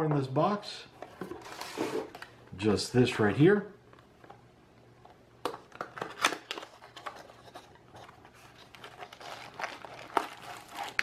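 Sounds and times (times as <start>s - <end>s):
packaging rustling: 5.7s - 11.0s.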